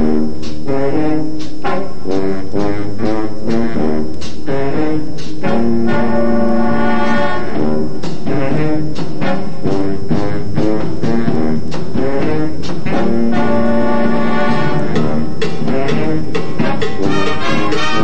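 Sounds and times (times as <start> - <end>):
marching band brass chords: 0.0 - 18.0
sharp percussion strikes: 8.0 - 18.0.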